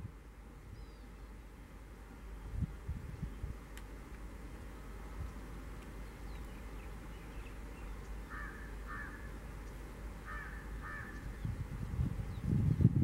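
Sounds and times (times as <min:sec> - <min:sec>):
low background noise: 0:00.0 - 0:13.0
crow cawing: 0:08.3 - 0:09.3, 0:10.2 - 0:11.2.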